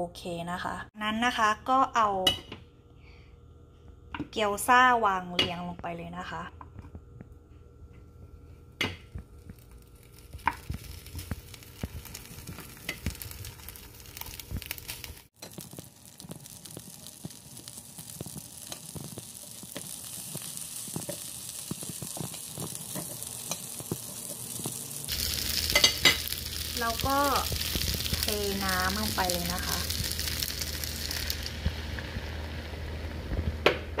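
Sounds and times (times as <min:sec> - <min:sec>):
dumplings sizzling: 0:09.1 - 0:34.0
tongs tapping frying pan: 0:18.1 - 0:28.2.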